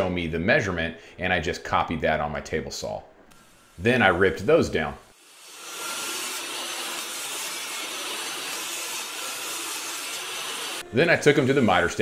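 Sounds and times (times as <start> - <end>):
table saw cutting plywood: 5.1 - 12.0.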